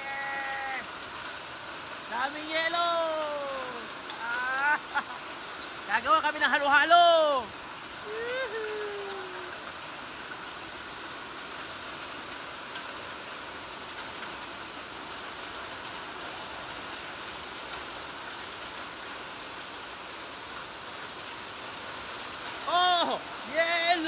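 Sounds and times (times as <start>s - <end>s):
rain and hail on metal roof: 0.0s - 24.0s.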